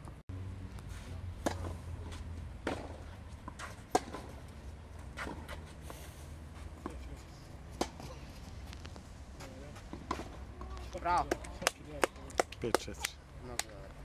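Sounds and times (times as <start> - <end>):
tennis ball struck by racquets: 1.4 - 1.8, 2.6 - 4.4, 5.0 - 5.7, 7.7 - 8.1, 9.9 - 13.6.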